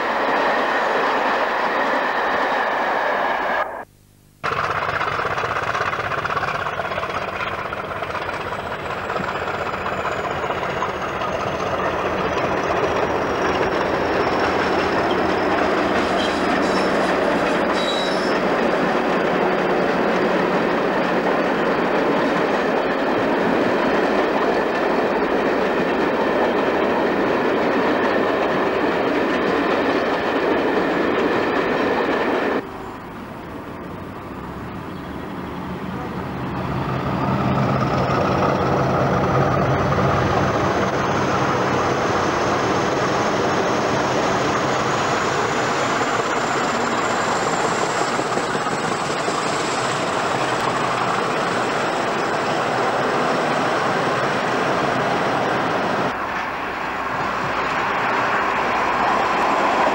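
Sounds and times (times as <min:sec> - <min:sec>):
train wheels on rail: 0:00.0 - 0:03.8, 0:04.4 - 0:59.9
diesel locomotive engine: 0:00.0 - 0:59.9
approaching locomotive rumble: 0:04.4 - 0:59.9.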